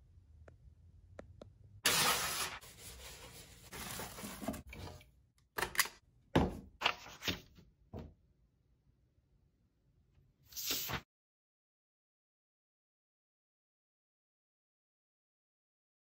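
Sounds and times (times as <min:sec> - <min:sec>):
packaging rustling: 0:01.9 - 0:04.7.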